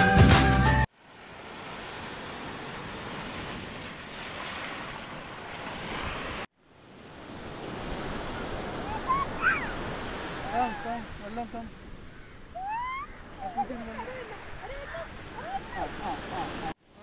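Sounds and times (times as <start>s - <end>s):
waves washing onto sand: 0.9s - 17.0s.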